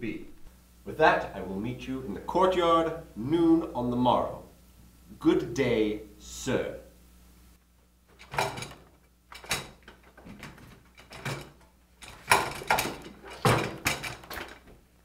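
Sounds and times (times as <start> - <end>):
knocks and clunks: 8.1 - 14.8.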